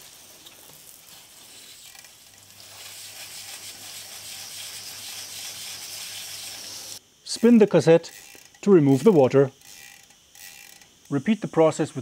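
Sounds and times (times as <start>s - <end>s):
hose nozzle spray hissing: 0.0s - 7.9s.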